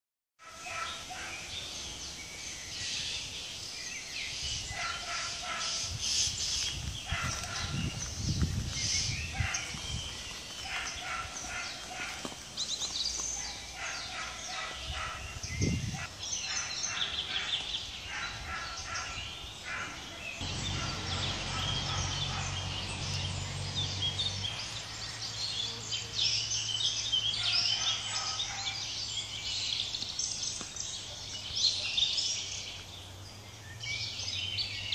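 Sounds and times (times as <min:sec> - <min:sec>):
birds chirping and singing: 0:00.4 - 0:34.9.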